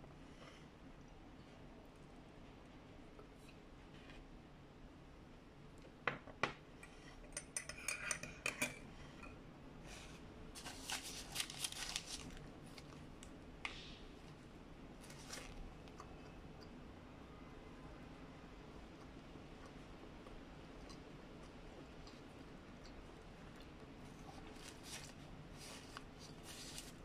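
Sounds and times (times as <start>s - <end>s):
paper wrapper crinkling: 10.6s - 13.3s, 15.0s - 15.6s, 24.4s - 27.0s.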